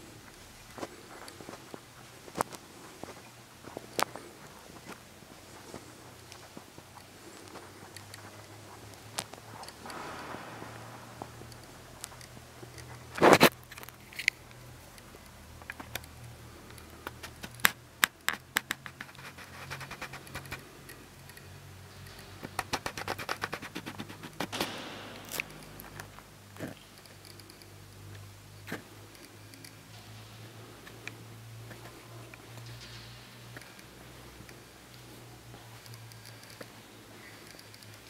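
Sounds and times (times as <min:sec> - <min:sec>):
low steady hum: 0:00.0 - 0:23.1
sharp clicks and knocks: 0:07.5 - 0:35.0.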